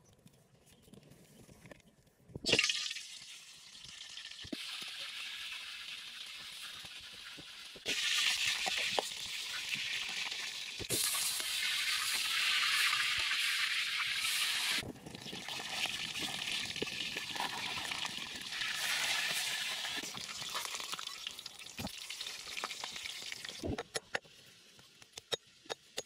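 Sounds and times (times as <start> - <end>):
meat sizzling in hot oil: 2.5 - 23.6.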